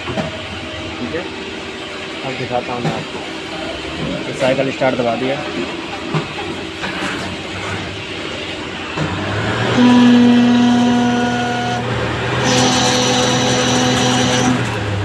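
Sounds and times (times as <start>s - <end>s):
steady machine hum: 0.0s - 15.0s
loud steady whine: 7.8s - 15.0s
lathe cutting metal: 8.7s - 15.0s
higher-edged whine: 9.6s - 14.7s.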